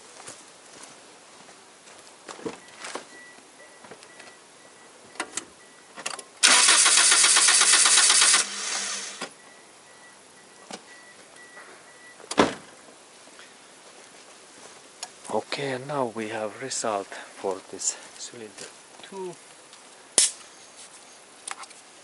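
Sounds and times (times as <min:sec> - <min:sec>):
engine cranking on starter: 0:06.4 - 0:09.4.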